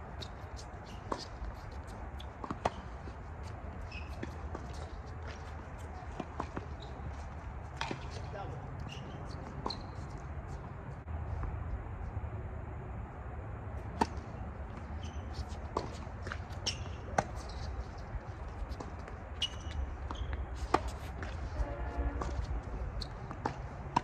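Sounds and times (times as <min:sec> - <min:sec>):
tennis ball hits and bounces: 0:00.1 - 0:10.6, 0:13.8 - 0:24.0.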